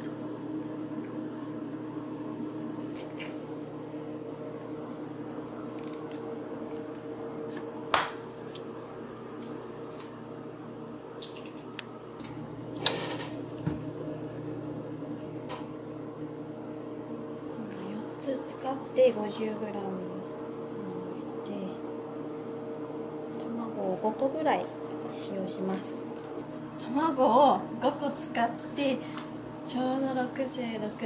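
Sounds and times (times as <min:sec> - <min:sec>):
appliance humming: 0:00.0 - 0:31.0.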